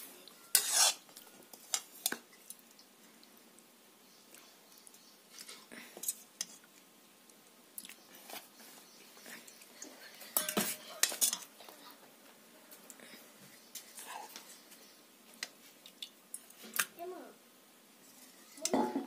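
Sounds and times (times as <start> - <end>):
metal spoon scraping and clinking: 0.4 - 1.0, 10.3 - 11.5.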